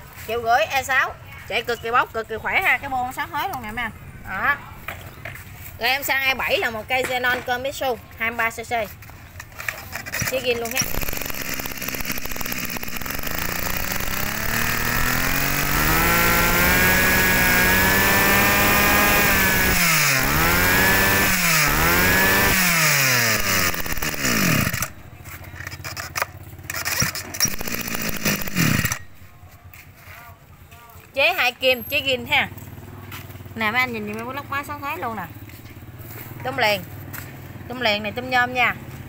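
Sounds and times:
brush cutter engine revving: 9.4s - 29.2s.

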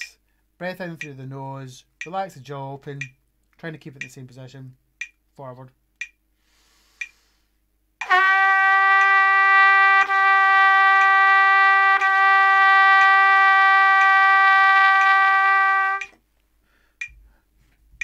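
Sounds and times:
faint breath: 6.4s - 7.6s, 16.6s - 17.6s
trumpet holding a long note: 8.0s - 16.1s.

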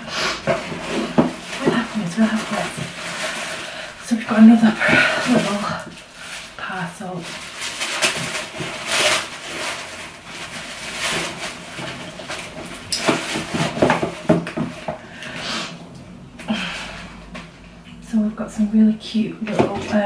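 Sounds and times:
wrapping crinkling and rustling: 0.0s - 20.0s
sharp crackles of wrapping: 0.1s - 15.8s.

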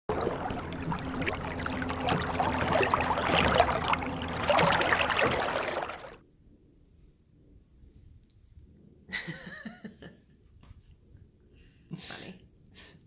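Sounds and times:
water splashing and trickling: 0.0s - 6.2s
faint low hum: 0.1s - 12.9s.

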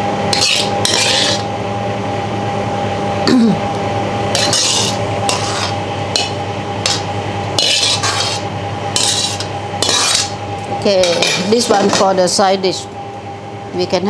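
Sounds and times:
steady hum: 0.0s - 14.0s
metal ladle scraping a wok: 0.3s - 1.5s, 4.3s - 10.4s, 11.0s - 12.0s.

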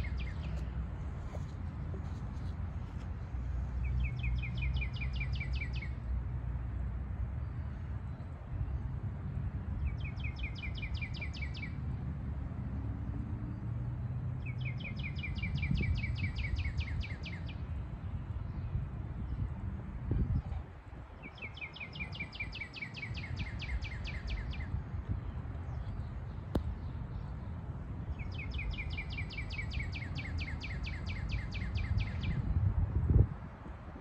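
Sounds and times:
steady low rumble: 0.0s - 5.2s.

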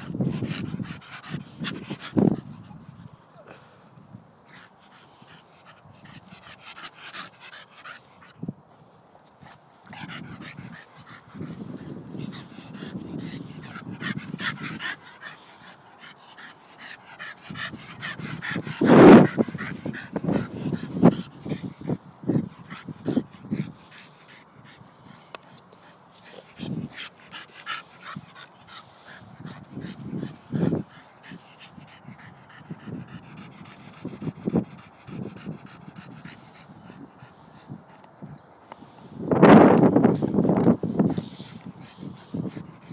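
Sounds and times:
dog panting: 0.0s - 3.7s, 4.4s - 8.4s, 9.2s - 42.9s.

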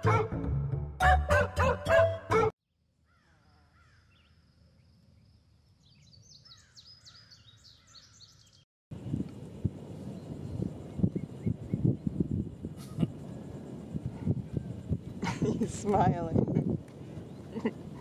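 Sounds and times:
birds chirping: 3.4s - 8.7s, 17.0s - 18.0s.

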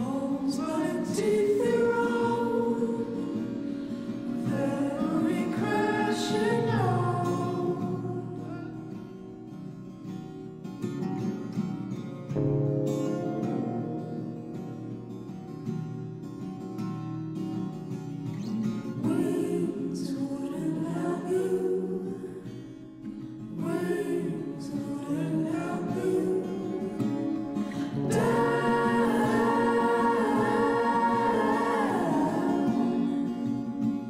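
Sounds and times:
song with singing voices: 0.0s - 8.9s, 19.0s - 22.5s, 23.5s - 34.0s.

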